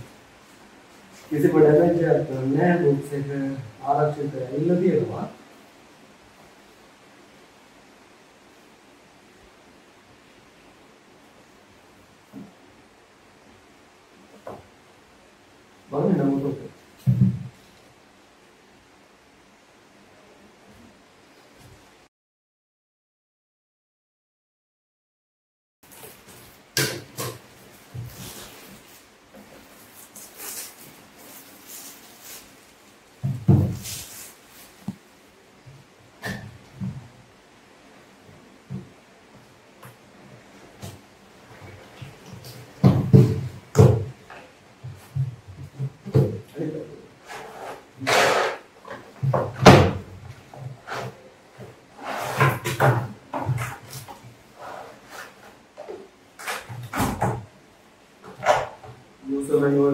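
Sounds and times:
cardboard sleeve scraping and rustling: 27.2 - 32.9, 52.0 - 52.9, 53.5 - 55.6.

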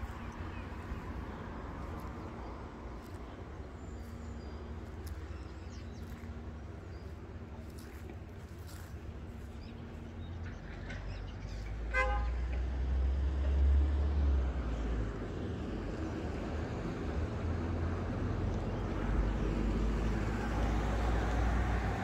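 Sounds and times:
traffic rumble: 0.0 - 22.0
vehicle horn toot: 11.9 - 12.4.

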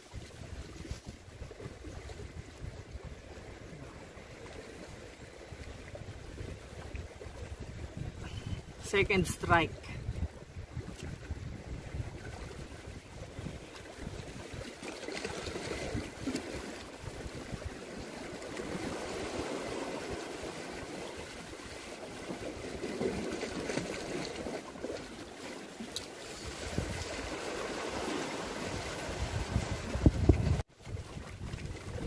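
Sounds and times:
wind buffeting microphone: 0.0 - 8.9, 9.8 - 14.8, 26.4 - 32.0
sea water washing over rocks: 0.0 - 32.0.

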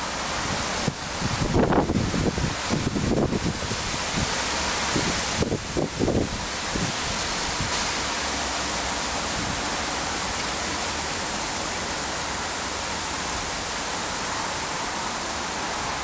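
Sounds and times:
wind rushing through trees: 0.0 - 16.0
wind on microphone: 0.2 - 8.1.

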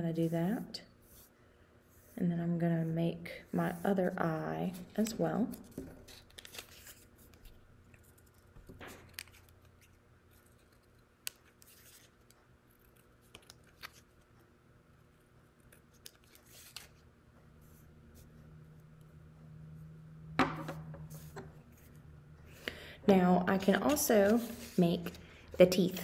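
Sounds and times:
paper rustling: 4.8 - 14.2, 15.7 - 17.0, 23.6 - 26.0.

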